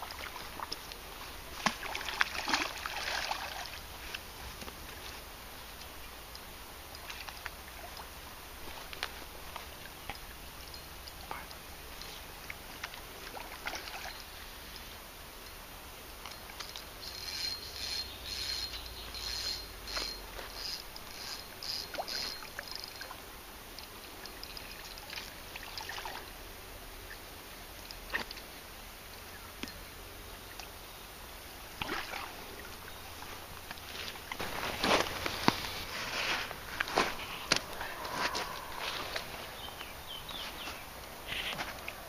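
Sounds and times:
fish splashing at water surface: 1.5s - 4.3s.

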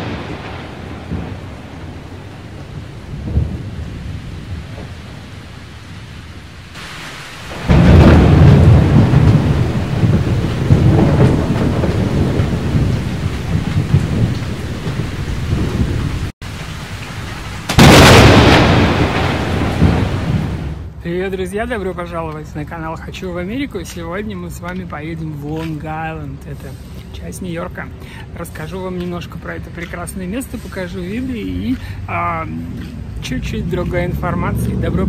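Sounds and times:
thunder-like rumbling: 0.0s - 21.0s
loud boom: 7.6s - 12.4s, 17.7s - 20.8s.

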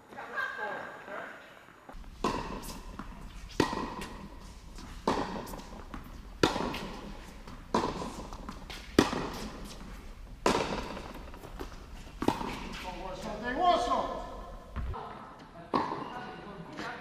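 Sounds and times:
tennis racket hitting ball: 2.0s - 15.0s.

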